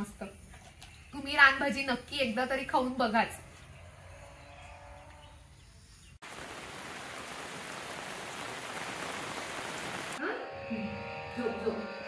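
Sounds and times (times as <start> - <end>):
steady rain falling: 6.2 - 10.2
music: 10.2 - 12.0.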